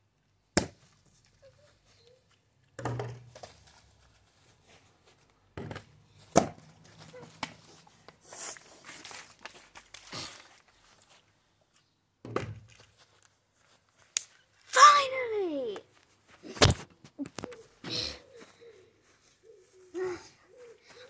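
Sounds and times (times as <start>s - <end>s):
plastic bottle knocking on ground: 2.8s - 3.4s, 12.2s - 12.8s.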